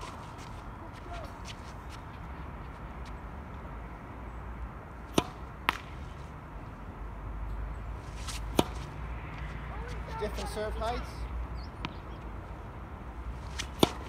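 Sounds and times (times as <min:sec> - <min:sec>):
tennis ball bouncing on hard court: 0:05.1 - 0:06.0, 0:08.2 - 0:08.9, 0:11.8 - 0:12.2, 0:13.4 - 0:14.0
racket hitting tennis ball: 0:05.1 - 0:06.2, 0:08.0 - 0:09.0, 0:13.3 - 0:14.0.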